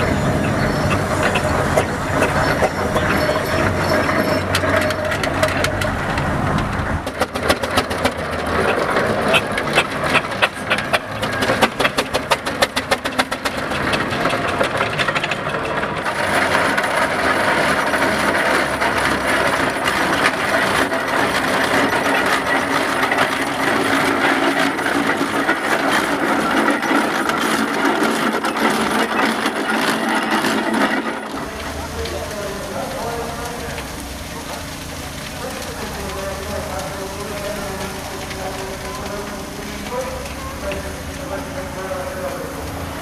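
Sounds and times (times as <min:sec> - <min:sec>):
steam hiss: 0:00.0 - 0:04.7
steam engine chuffing and clatter: 0:00.0 - 0:43.0.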